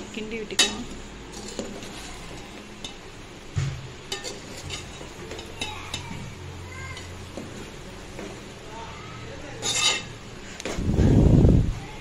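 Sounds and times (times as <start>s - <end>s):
spoon scraping metal pot: 0.6s - 3.1s, 4.1s - 6.2s, 9.6s - 10.2s
spoon clinking against pot: 4.1s - 6.2s, 9.6s - 10.1s.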